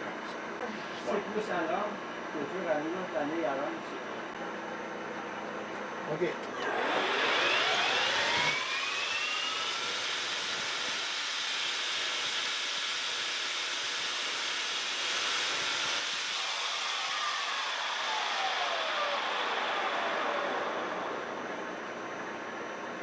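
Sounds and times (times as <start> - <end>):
lathe motor whine: 1.1 - 23.0
lathe cutting metal bar hiss: 6.7 - 21.5.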